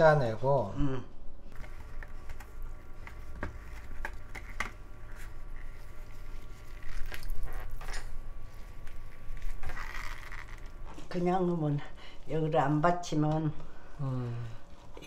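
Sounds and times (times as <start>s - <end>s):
wet squishing of squeezed cloth: 4.0s - 8.0s.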